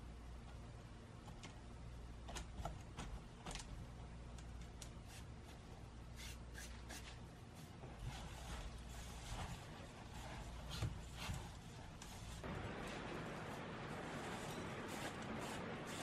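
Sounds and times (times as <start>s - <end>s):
faint low hum: 0.0s - 16.0s
fingers brushing bamboo basket: 6.2s - 16.0s
tea leaves rustling: 12.2s - 16.0s.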